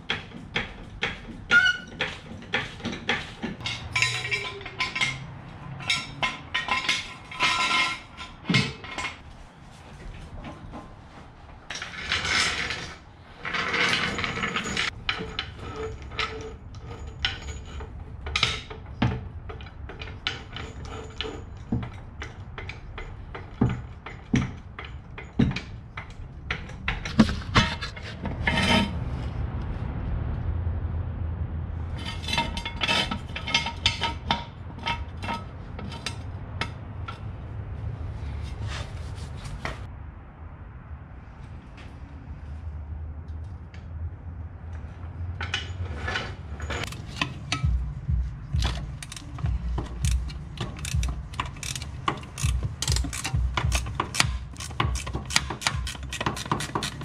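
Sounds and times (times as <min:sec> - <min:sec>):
metal clinks and knocks: 0:00.0 - 0:09.2, 0:11.7 - 0:28.9, 0:32.0 - 0:37.4, 0:45.3 - 0:57.0
metal rasping and scraping: 0:00.0 - 0:29.4, 0:31.9 - 0:39.9, 0:45.2 - 0:57.0.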